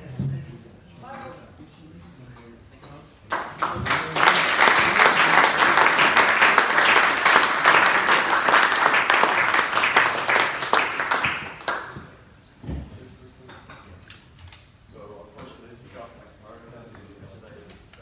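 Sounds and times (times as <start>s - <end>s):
crowd applauding: 3.3s - 12.0s.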